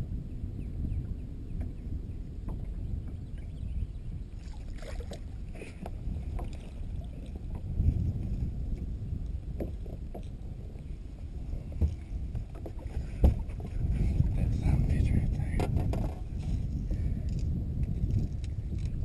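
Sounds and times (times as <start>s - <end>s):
knocks and clicks on boat deck: 2.4s - 3.2s, 9.6s - 10.4s, 11.7s - 13.8s, 15.5s - 16.6s
water lapping against boat hull: 2.4s - 18.9s.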